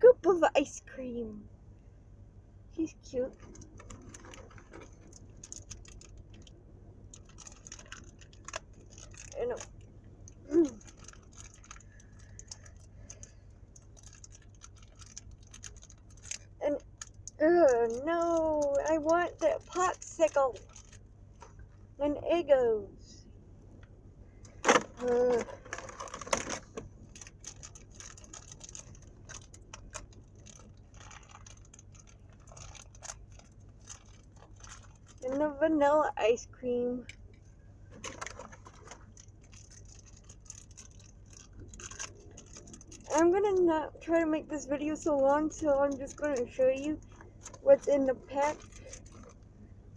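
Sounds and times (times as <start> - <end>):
low steady hum: 0.0 - 49.9
plastic packaging crinkling: 3.2 - 21.8, 24.5 - 35.6, 37.9 - 49.6
small plastic toys clicking: 3.3 - 21.0, 24.7 - 35.4, 38.0 - 43.7.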